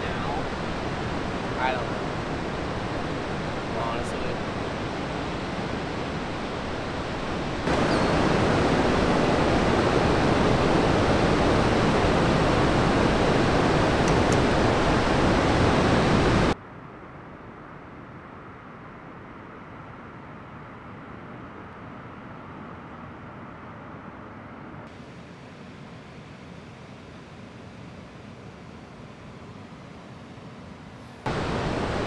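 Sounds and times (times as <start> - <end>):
ocean surf breaking: 0.0 - 16.6, 31.3 - 32.0.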